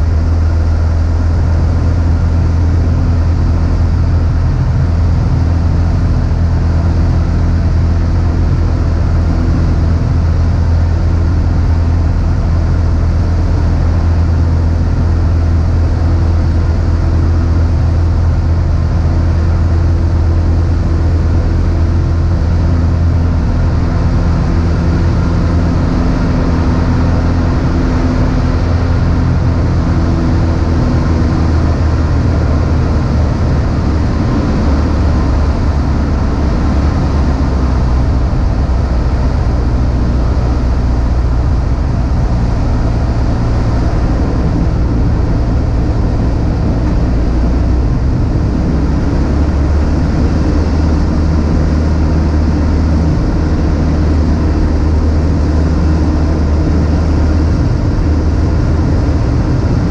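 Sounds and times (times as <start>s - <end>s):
small plane engine droning in cabin: 0.0s - 59.9s.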